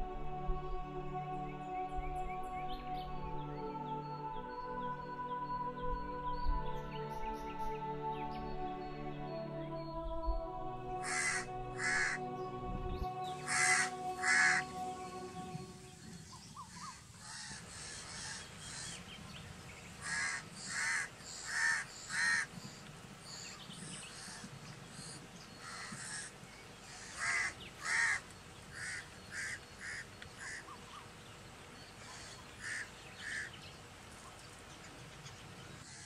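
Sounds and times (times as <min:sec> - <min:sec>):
crow cawing: 0:11.0 - 0:12.2, 0:13.4 - 0:14.6, 0:20.0 - 0:22.5, 0:25.6 - 0:26.3, 0:27.0 - 0:28.2, 0:28.8 - 0:30.7, 0:32.1 - 0:33.5.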